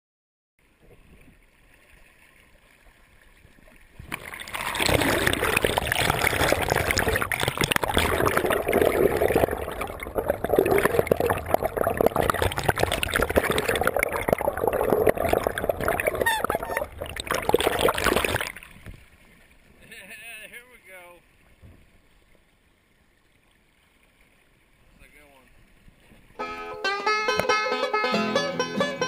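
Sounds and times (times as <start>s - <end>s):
water gurgling and splashing underwater: 0.6s - 19.3s.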